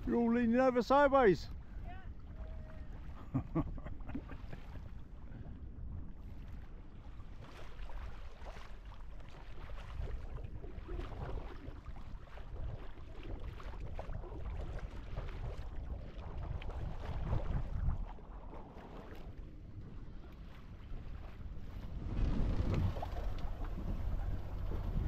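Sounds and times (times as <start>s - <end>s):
water rushing along hull: 0.0s - 25.0s
wind buffeting microphone: 9.6s - 25.0s.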